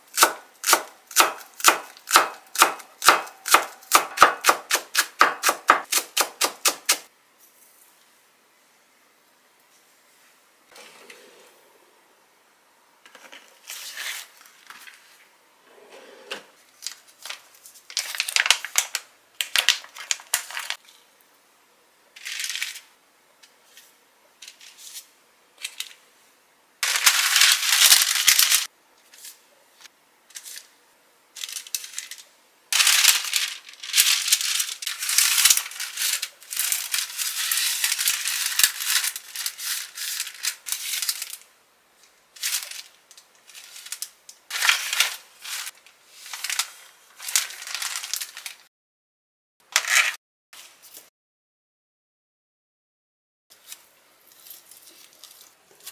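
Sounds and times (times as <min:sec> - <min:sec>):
paper and plastic crinkling: 0:13.2 - 0:15.2, 0:16.7 - 0:20.8, 0:26.8 - 0:29.3, 0:31.4 - 0:41.5, 0:42.4 - 0:48.7, 0:53.6 - 0:55.9.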